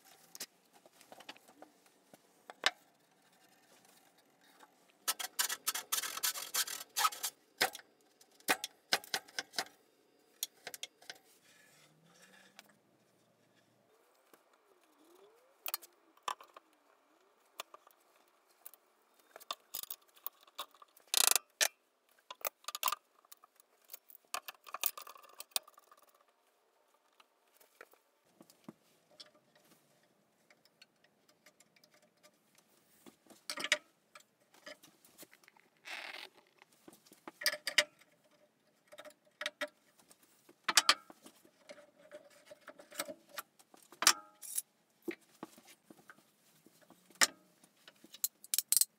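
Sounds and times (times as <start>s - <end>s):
metal clamps clicking and rattling: 48.0s - 48.9s.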